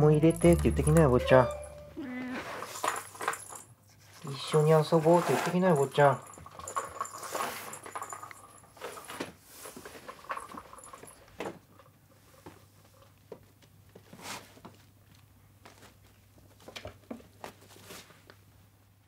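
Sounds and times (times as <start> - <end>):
cats pawing on a rug: 12.2 - 18.6.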